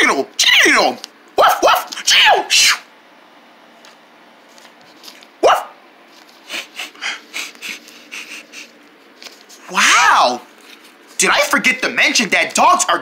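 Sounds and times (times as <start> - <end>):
dog barking: 1.4 - 1.9, 5.4 - 5.8.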